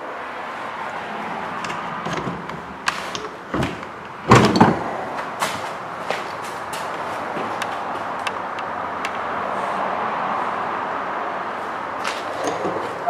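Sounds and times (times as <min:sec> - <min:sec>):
scattered knocks and clicks: 0:01.6 - 0:09.2.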